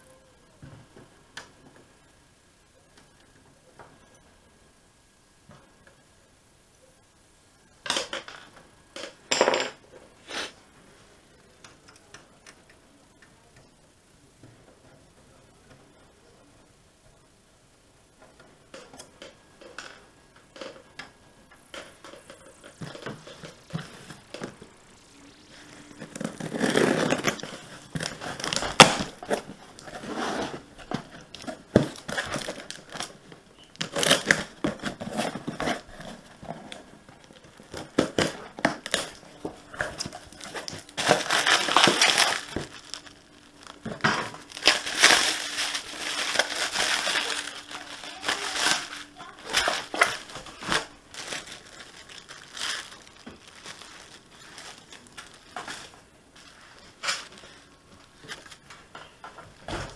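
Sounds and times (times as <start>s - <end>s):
packaging crinkling and rustling: 21.6s - 59.9s.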